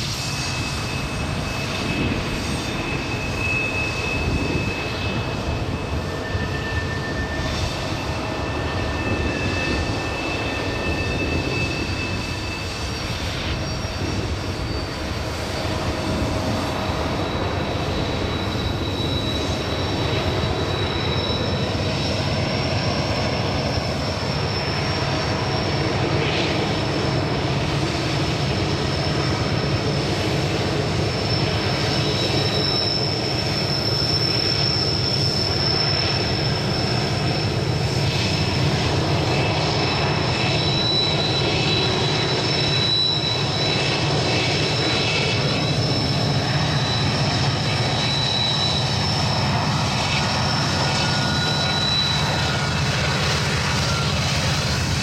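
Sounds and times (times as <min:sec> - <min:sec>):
high wheel squeals: 0:00.0 - 0:55.0
train wheels rumbling on rail: 0:00.0 - 0:55.0.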